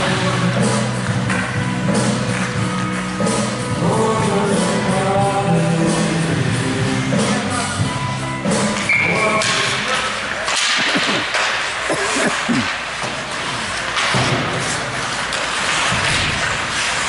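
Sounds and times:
rink music: 0:00.0 - 0:17.0
skate blades scraping ice: 0:08.6 - 0:17.0
sticks and puck knocking: 0:08.7 - 0:17.0.

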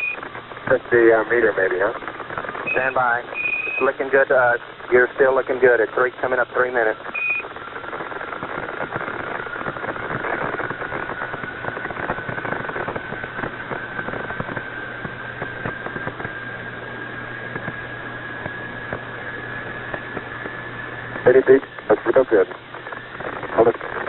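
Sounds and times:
crackling clicks: 0:00.0 - 0:24.0
low hum: 0:00.0 - 0:24.0
radio static hiss: 0:00.0 - 0:24.0
thin rising whistle tone: 0:02.7 - 0:03.8.

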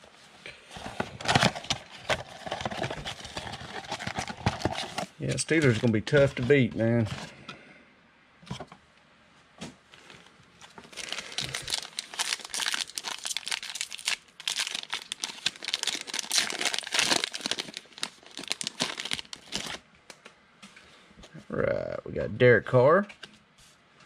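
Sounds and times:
plastic wrapper crinkling: 0:00.9 - 0:07.1, 0:10.6 - 0:19.8.

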